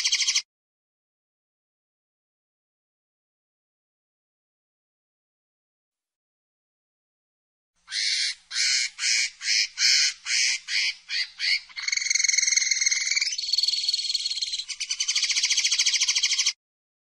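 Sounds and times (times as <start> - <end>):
linnet singing: 0.0 - 0.4, 9.8 - 16.6.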